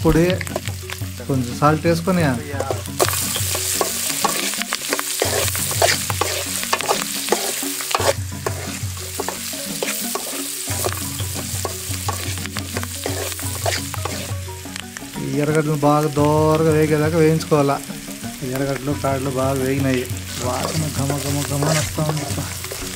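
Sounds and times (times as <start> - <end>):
food sizzling in hot oil: 0.0 - 22.9
steel spoon scraping a pan: 2.6 - 14.4, 20.2 - 22.9.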